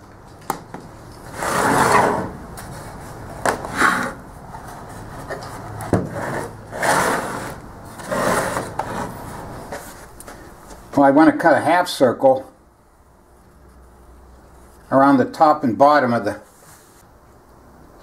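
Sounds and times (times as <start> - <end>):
wood scraping on wood: 1.2 - 10.8.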